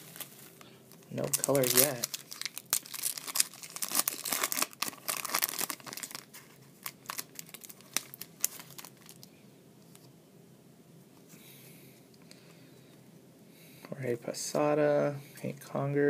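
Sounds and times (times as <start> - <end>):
foil wrapper crinkling: 0.0 - 9.3.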